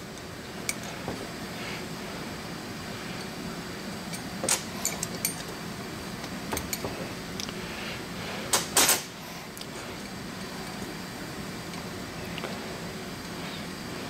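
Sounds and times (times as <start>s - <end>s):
steady low hum: 0.0s - 14.0s
metal tool clicks and clinks: 4.1s - 5.5s.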